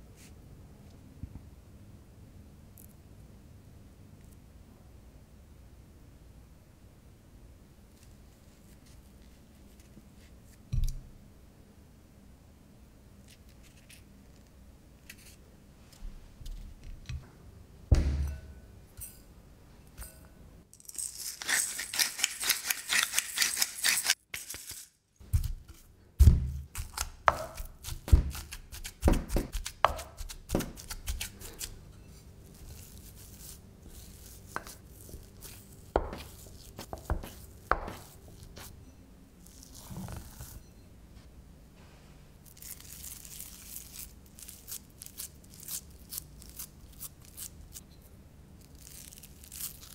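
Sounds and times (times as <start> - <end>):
hands pressing mashed potato: 25.2 - 31.8, 32.6 - 38.7
potato masher thudding: 26.2 - 31.3, 36.0 - 38.2.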